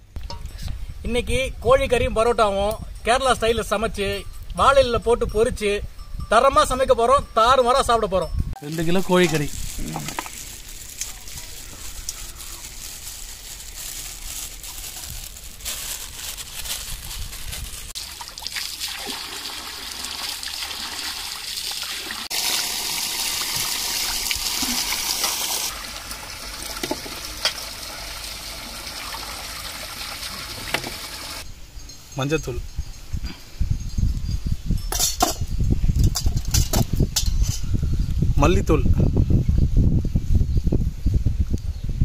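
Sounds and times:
water running from pipe: 0:17.9 - 0:31.4
water splashing in steel bowl: 0:18.0 - 0:31.4.

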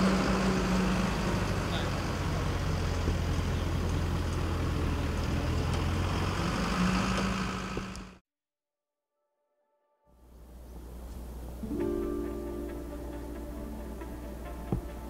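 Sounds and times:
diesel truck engine idling: 0:00.0 - 0:08.2.

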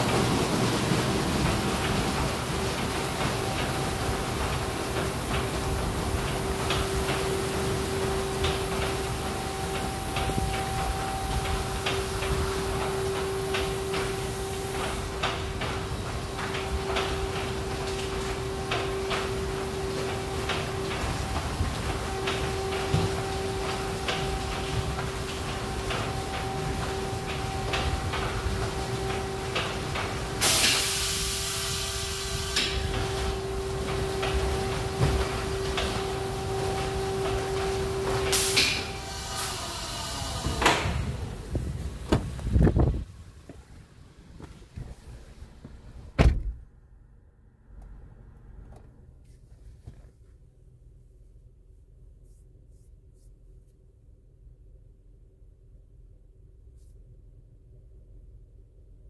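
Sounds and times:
machinery humming: 0:00.0 - 0:49.1
loud hissing spray: 0:30.4 - 0:37.0, 0:38.0 - 0:42.6
machinery knocks: 0:42.0 - 0:42.9.

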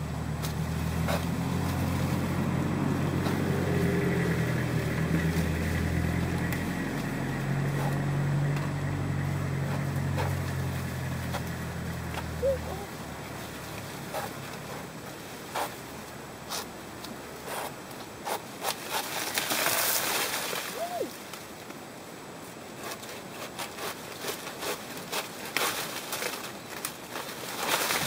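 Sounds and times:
dry leaves rustling and crackling: 0:00.0 - 0:17.6, 0:18.6 - 0:28.0
leaves ripping: 0:00.3 - 0:17.7, 0:18.3 - 0:21.8, 0:22.8 - 0:28.0.

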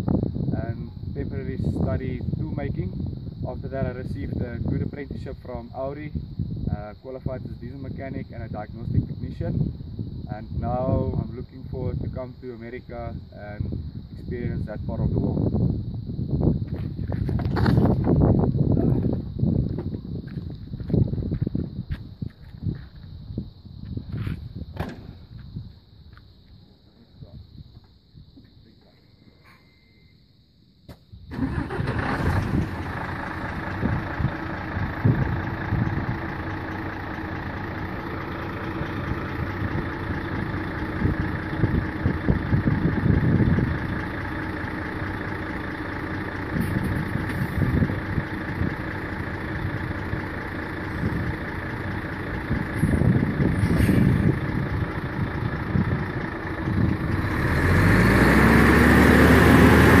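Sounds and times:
truck diesel engine starting up: 0:31.3 - 1:00.0
truck engine idling: 0:31.3 - 1:00.0
truck engine revving: 0:31.3 - 1:00.0.

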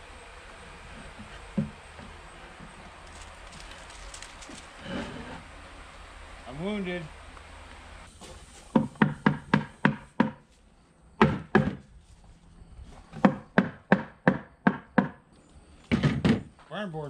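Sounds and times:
claw hammer striking wood: 0:08.7 - 0:10.4, 0:11.2 - 0:11.8, 0:13.2 - 0:15.2.

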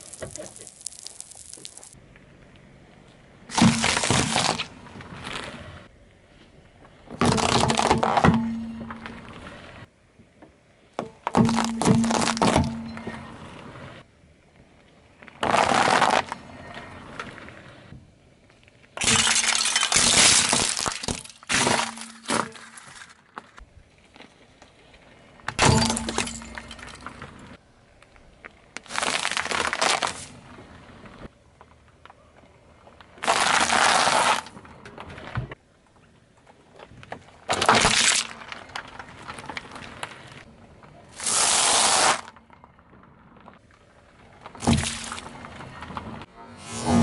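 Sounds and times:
tyre crushing brittle objects: 0:00.0 - 0:02.0, 0:03.5 - 0:05.5, 0:07.2 - 0:08.4, 0:11.2 - 0:12.8, 0:19.0 - 0:23.6, 0:28.8 - 0:30.3, 0:37.5 - 0:40.3, 0:44.5 - 0:45.3.

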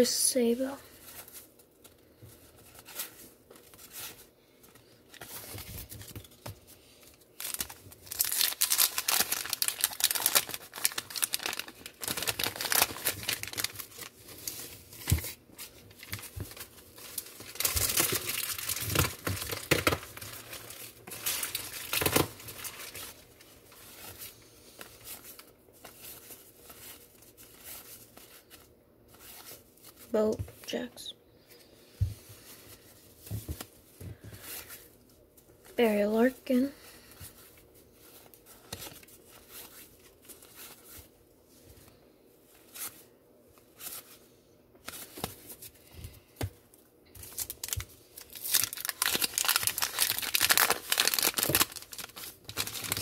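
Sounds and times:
paper wrapper tearing and crinkling: 0:07.4 - 0:24.3, 0:47.2 - 0:53.0.

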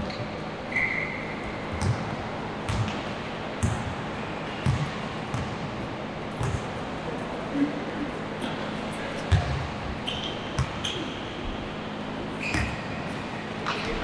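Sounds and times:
basketball bouncing on a court: 0:01.7 - 0:06.8, 0:09.3 - 0:09.8, 0:10.6 - 0:11.0, 0:12.5 - 0:13.0.

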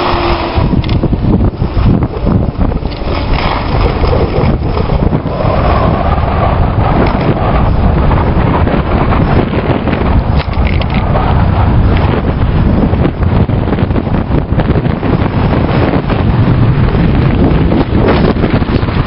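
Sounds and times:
skis sliding over snow: 0:00.0 - 0:12.2
wind buffeting microphone: 0:00.0 - 0:19.0.

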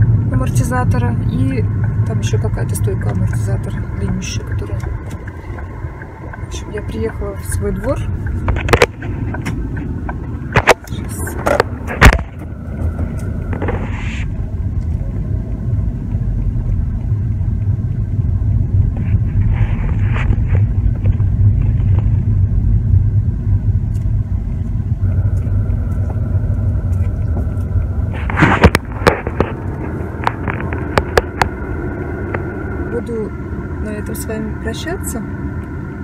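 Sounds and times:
car cabin rumble: 0:00.0 - 0:36.0
knocks and clicks: 0:26.9 - 0:31.6.

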